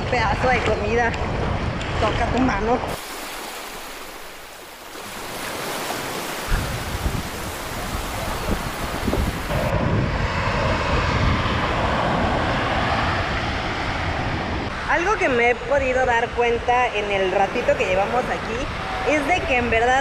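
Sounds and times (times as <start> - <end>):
wind rumbling on microphone: 0.0 - 20.0
surf breaking on beach: 2.9 - 9.8.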